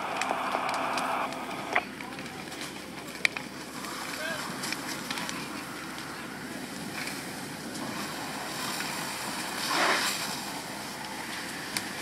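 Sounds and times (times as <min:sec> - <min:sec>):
louder whoosh: 0:00.0 - 0:01.7
fire hose spraying water: 0:00.0 - 0:12.0.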